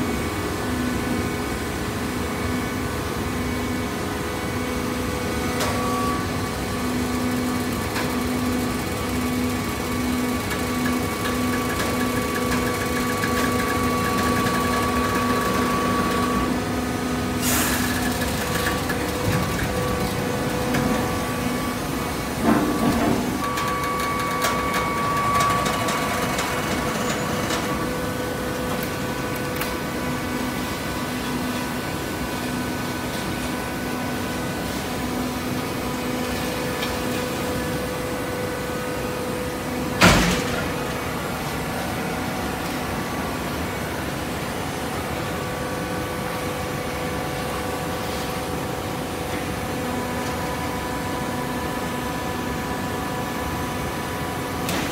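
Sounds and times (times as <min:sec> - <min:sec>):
hydraulic baler humming: 0:05.6 - 0:31.7.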